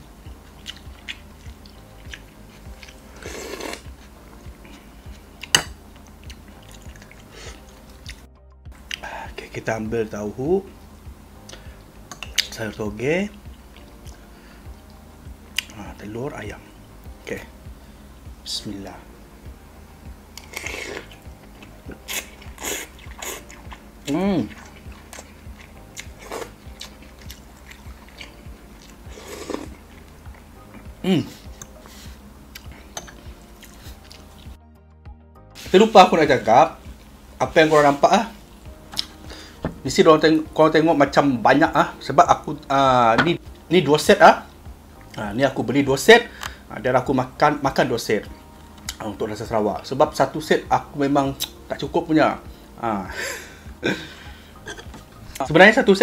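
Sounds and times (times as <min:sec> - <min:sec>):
person chewing and slurping noodles: 0:00.4 - 0:08.2, 0:20.3 - 0:23.9, 0:24.5 - 0:30.8, 0:39.0 - 0:39.6
chewing noodles with wet smacks: 0:06.3 - 0:08.3, 0:24.5 - 0:30.5.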